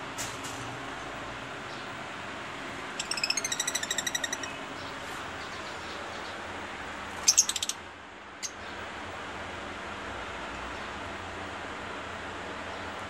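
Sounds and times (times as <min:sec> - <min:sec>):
lovebirds chirping: 0:02.9 - 0:06.5, 0:07.1 - 0:07.8.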